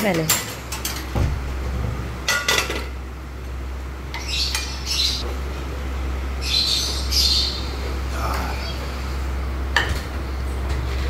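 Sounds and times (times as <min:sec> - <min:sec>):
steady low hum: 0:00.0 - 0:11.0
bird squawking: 0:06.4 - 0:09.0.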